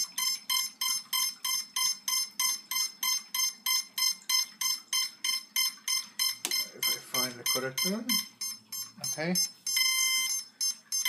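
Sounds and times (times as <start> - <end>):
short high beeps: 0.2 - 11.0.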